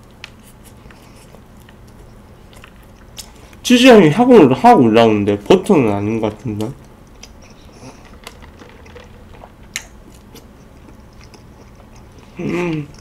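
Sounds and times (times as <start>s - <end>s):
person humming: 12.3s - 13.0s.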